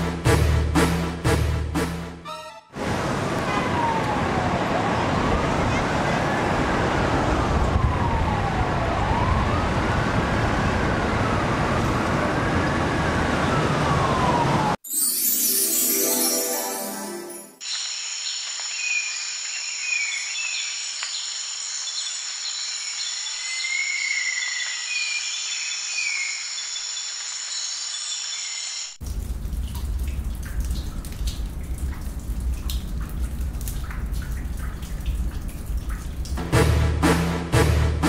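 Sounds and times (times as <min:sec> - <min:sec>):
deep rumble with crackling: 0:29.0 - 0:36.4.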